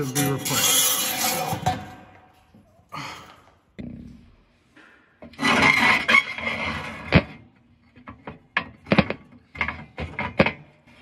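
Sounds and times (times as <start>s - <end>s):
metal plate scraping: 0.0s - 2.1s, 5.3s - 7.4s.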